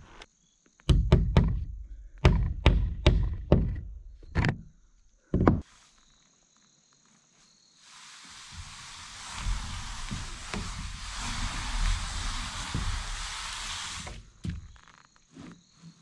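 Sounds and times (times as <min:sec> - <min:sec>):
hammer striking nails: 0:00.9 - 0:03.9
steady hiss: 0:07.5 - 0:15.1.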